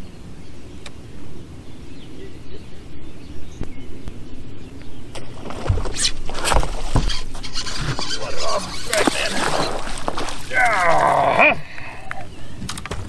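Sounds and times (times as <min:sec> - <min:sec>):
dull thumps: 0:05.2 - 0:10.9
fish thrashing and splashing: 0:05.2 - 0:12.1.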